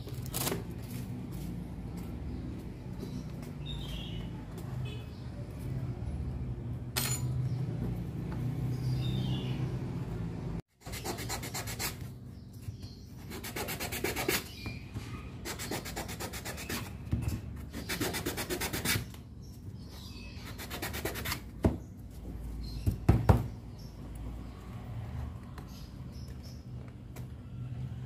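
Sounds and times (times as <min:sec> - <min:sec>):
fast rubbing strokes: 0:10.8 - 0:12.1, 0:13.2 - 0:14.5, 0:15.4 - 0:17.0, 0:17.7 - 0:19.1.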